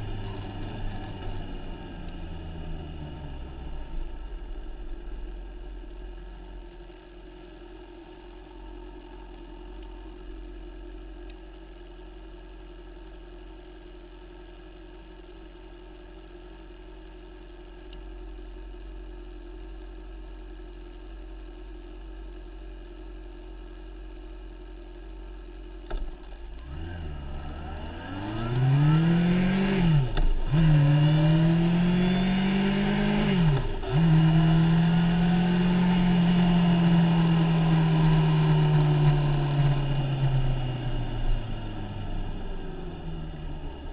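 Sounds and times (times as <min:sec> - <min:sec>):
motorcycle engine: 0:00.0 - 0:11.1, 0:25.8 - 0:43.9.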